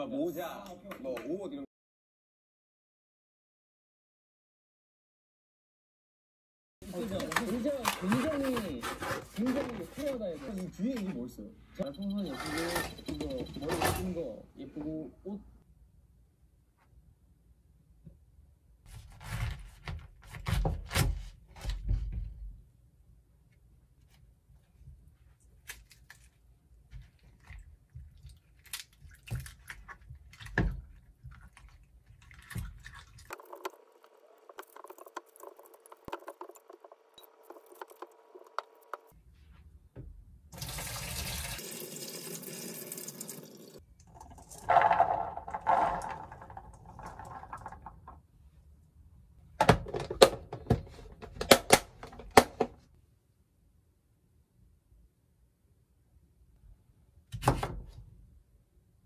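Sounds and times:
water sloshing in a bowl: 27.0 - 33.7
running water: 40.6 - 43.8.

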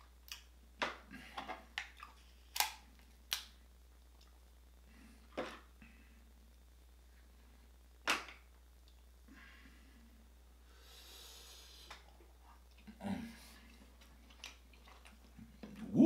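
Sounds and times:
crab leg cracking: 2.5 - 3.6.

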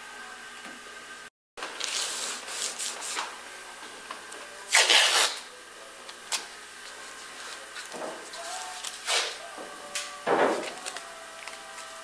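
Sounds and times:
tape rustling and rubbing: 4.7 - 5.4
tape ripping: 4.7 - 5.5.

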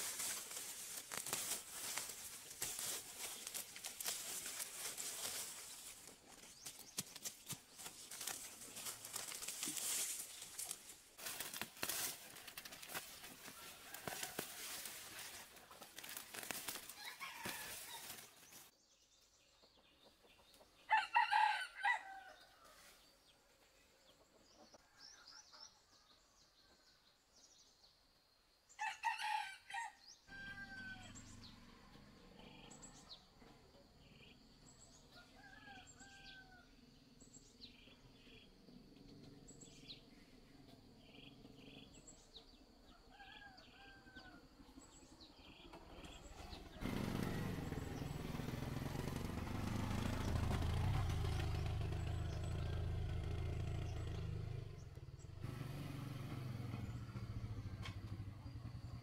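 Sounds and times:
dry leaves rustling: 0.0 - 18.7
small birds chirping: 0.0 - 20.9
rooster crowing: 13.6 - 15.1, 16.9 - 18.3, 20.9 - 22.8, 28.8 - 31.5, 35.1 - 36.7, 42.9 - 44.5.

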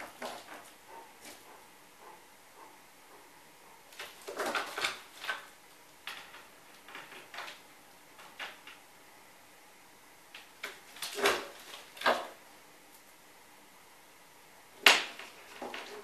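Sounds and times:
bird scrapes and knocks: 0.0 - 1.4, 4.0 - 5.5, 10.6 - 12.3.

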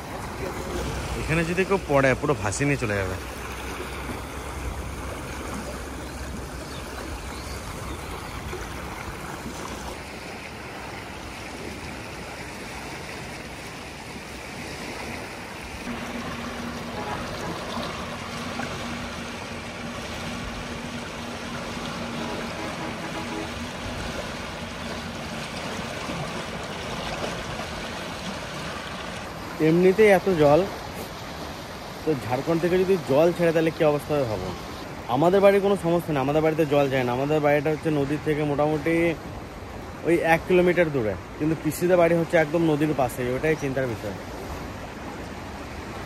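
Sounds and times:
river rushing: 0.0 - 46.0
low hum: 15.9 - 26.2.

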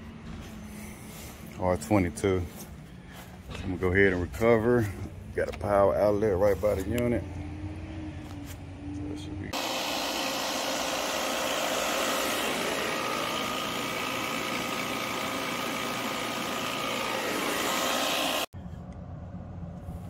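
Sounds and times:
machine compressor and fan running: 0.0 - 5.4, 9.5 - 20.0.

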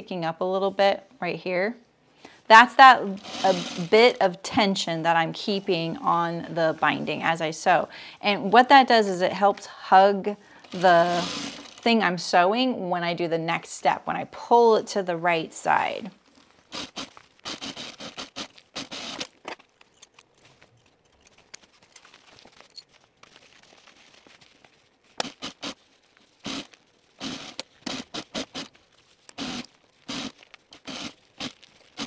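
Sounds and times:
fabric rustling and crinkling: 10.6 - 12.0, 15.1 - 32.0.

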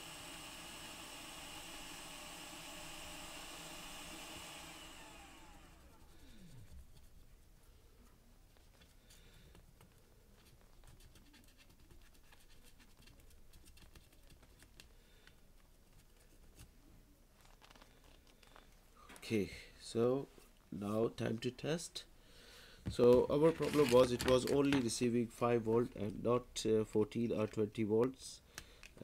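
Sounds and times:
small fan spinning down: 0.0 - 6.7.

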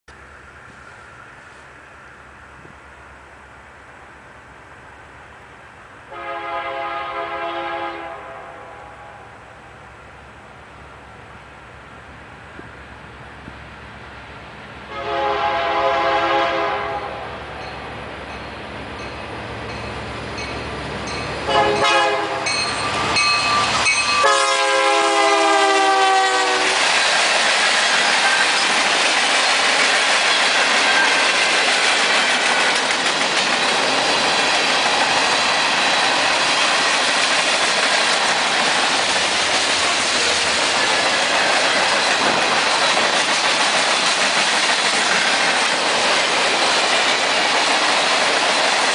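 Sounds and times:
locomotive engine rumble: 0.1 - 7.4, 8.3 - 48.9
locomotive horn: 6.1 - 9.5, 14.9 - 17.4, 21.4 - 26.8
freight cars rumbling and clattering: 26.7 - 48.9.

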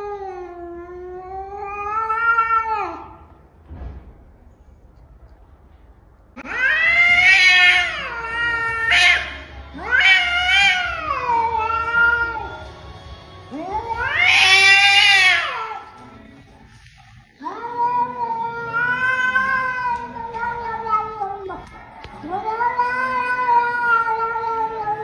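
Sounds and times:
cat yowling angrily: 0.0 - 3.2, 6.4 - 12.6, 13.6 - 15.9, 17.4 - 21.5, 22.3 - 25.0.

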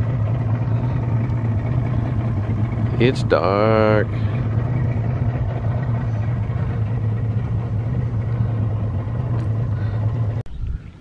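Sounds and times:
boat motor running: 0.0 - 10.8.

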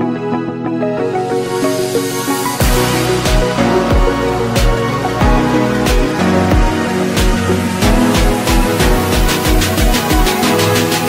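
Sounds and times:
held synth chords: 0.0 - 11.0
deep kick drums: 2.6 - 10.4.

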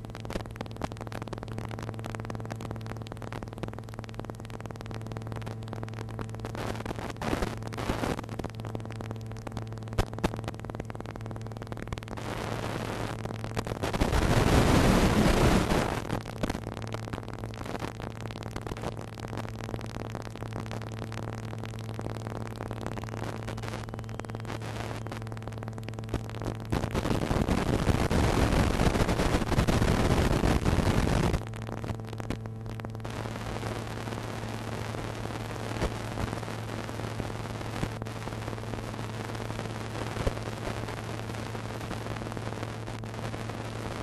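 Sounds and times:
electrical hum: 0.0 - 44.0
loud rush of static: 0.0 - 44.0.

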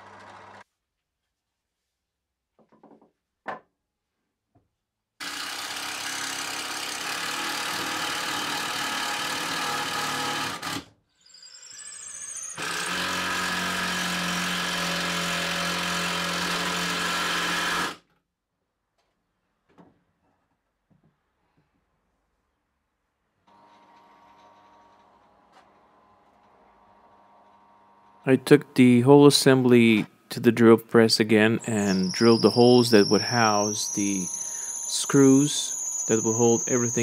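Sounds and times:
cordless drill driving screws: 5.2 - 18.0, 31.8 - 37.0.

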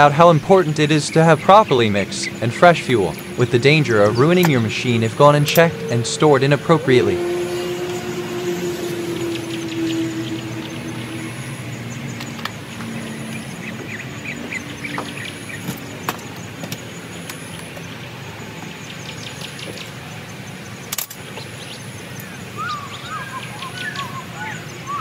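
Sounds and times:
steady low rumble: 0.0 - 14.8
small birds chirping: 0.0 - 25.0.

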